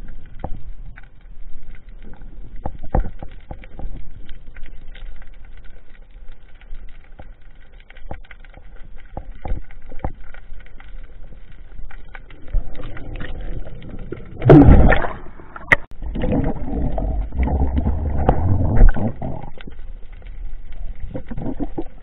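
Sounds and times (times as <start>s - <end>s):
underwater water movement: 0.0s - 22.0s
low rumbling: 12.0s - 22.0s
water rushing: 12.2s - 19.7s.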